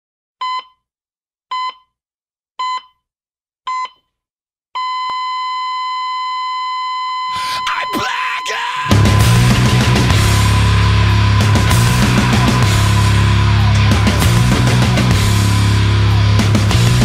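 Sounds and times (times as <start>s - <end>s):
electronic countdown beeps: 0.4s - 0.8s, 1.5s - 2.0s, 2.6s - 3.0s, 3.7s - 4.0s
rushing noise: 8.7s - 17.0s
music: 8.8s - 17.0s.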